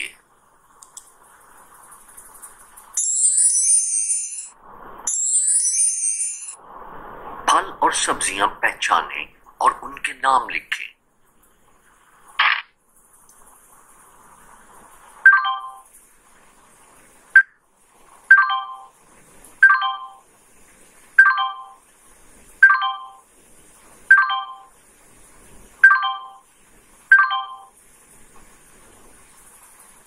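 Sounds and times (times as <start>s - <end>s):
computer chime: 3.0s - 6.6s, 15.3s - 15.9s, 18.3s - 18.9s, 19.6s - 20.2s, 21.2s - 21.8s, 22.6s - 23.2s, 24.1s - 24.7s, 25.8s - 26.4s, 27.1s - 27.8s.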